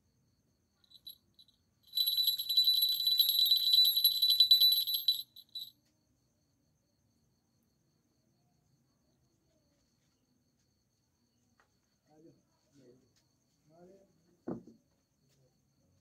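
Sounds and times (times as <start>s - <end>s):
small bell jingling: 0.8s - 5.7s.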